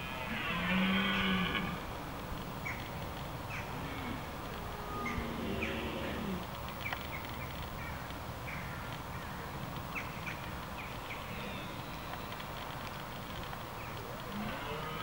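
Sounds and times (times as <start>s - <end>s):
deer roaring: 0.0s - 1.8s, 3.7s - 6.5s, 14.3s - 15.0s
birds chirping: 0.0s - 15.0s.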